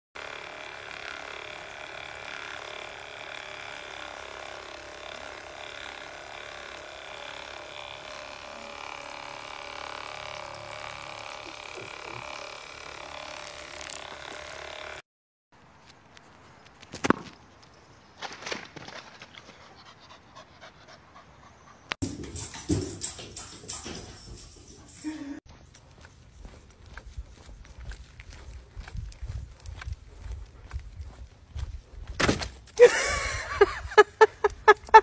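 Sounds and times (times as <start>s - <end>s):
electric appliance motor whine: 0.2s - 15.0s.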